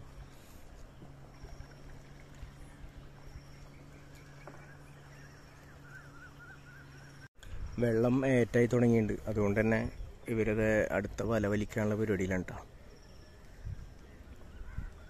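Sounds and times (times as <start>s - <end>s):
steady low hum: 0.0s - 15.0s
faint wavering call: 1.3s - 7.3s.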